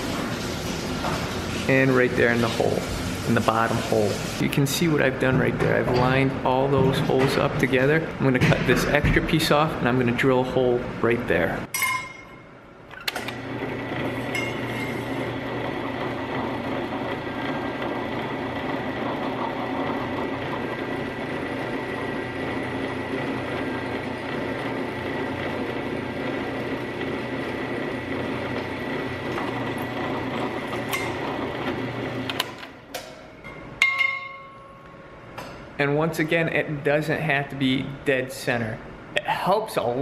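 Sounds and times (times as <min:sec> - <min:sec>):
drill press drilling metal: 0:13.1 - 0:32.6.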